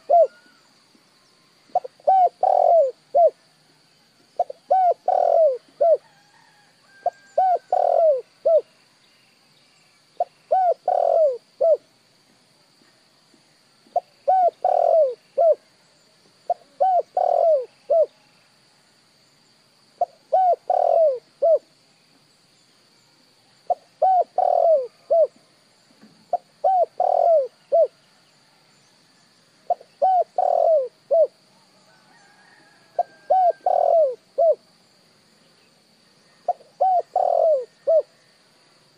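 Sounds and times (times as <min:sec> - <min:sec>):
dove cooing: 0:00.0 - 0:00.6, 0:01.7 - 0:03.4, 0:04.4 - 0:06.1, 0:07.0 - 0:08.7, 0:10.2 - 0:11.8, 0:13.9 - 0:15.6, 0:16.5 - 0:18.2, 0:20.0 - 0:21.7, 0:23.7 - 0:25.4, 0:26.3 - 0:28.0, 0:29.7 - 0:31.4, 0:32.2 - 0:34.6, 0:36.5 - 0:38.1.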